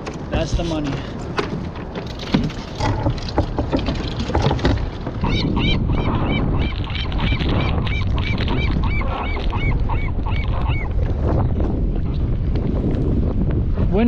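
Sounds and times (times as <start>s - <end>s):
wind noise on microphone: 0.0s - 14.0s
bird squealing calls: 5.2s - 10.9s.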